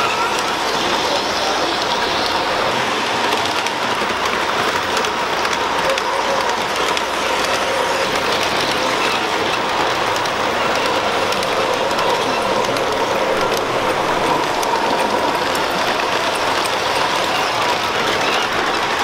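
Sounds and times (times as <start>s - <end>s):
wheels ticking on rails: 0.0s - 19.0s
model train motor whirring: 3.2s - 19.0s.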